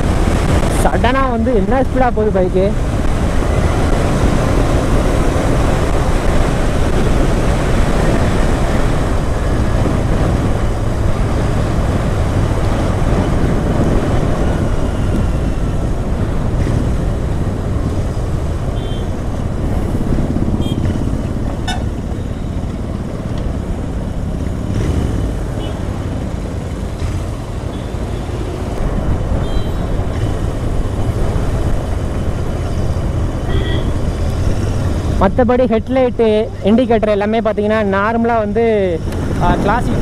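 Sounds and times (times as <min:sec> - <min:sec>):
motorcycle engine running: 0:03.1 - 0:34.1.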